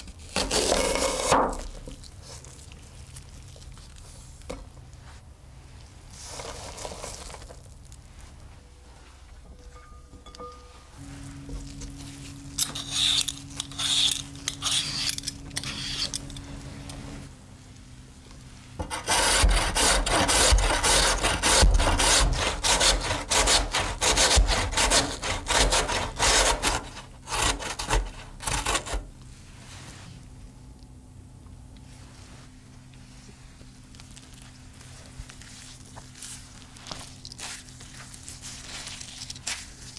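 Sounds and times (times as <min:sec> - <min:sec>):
potato peeling scrapes: 0:11.8 - 0:16.4, 0:34.0 - 0:39.9
grating on metal box grater: 0:18.8 - 0:29.0.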